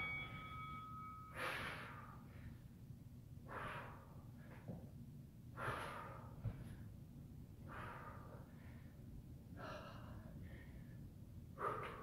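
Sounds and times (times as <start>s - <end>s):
woman breathing hard: 1.2s - 2.8s, 3.4s - 4.8s, 5.5s - 7.0s, 7.6s - 12.0s.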